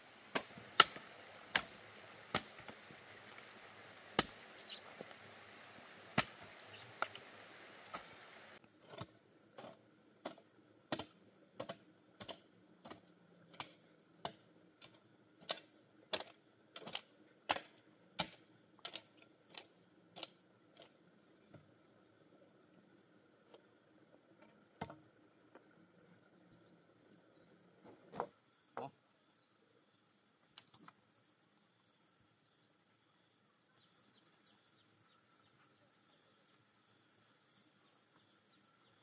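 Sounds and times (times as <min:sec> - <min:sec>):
hoe chopping into dirt: 0:00.3 - 0:02.8, 0:04.2 - 0:04.4, 0:06.2 - 0:06.5, 0:08.9 - 0:19.6.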